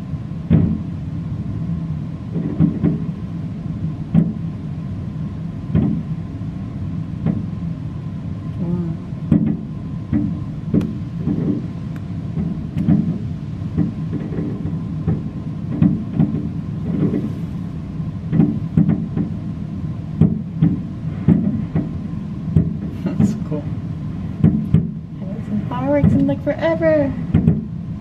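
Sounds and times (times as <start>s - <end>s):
low rumble: 0.0s - 28.0s
fireworks booming and popping: 2.3s - 3.2s, 9.3s - 17.4s, 20.2s - 23.5s.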